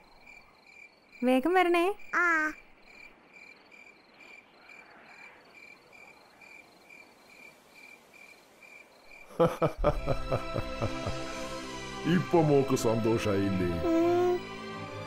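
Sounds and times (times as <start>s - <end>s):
cricket chirping: 0.0s - 10.1s.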